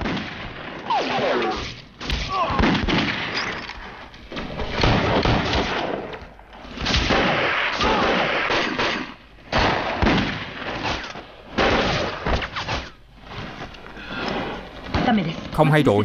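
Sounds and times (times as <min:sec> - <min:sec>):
rapid gunfire: 0:02.3 - 0:03.4, 0:04.7 - 0:06.1, 0:06.8 - 0:13.5.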